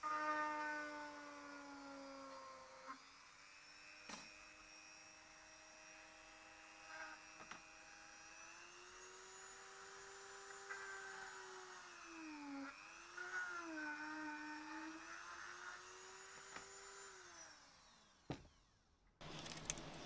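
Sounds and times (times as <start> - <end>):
rotary tool whining: 0.0 - 20.0.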